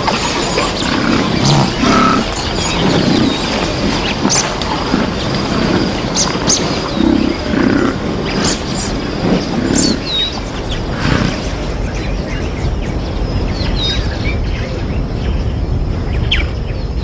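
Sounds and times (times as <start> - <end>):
buffalo grunting: 0.0 - 11.7
birds chirping: 0.0 - 17.0.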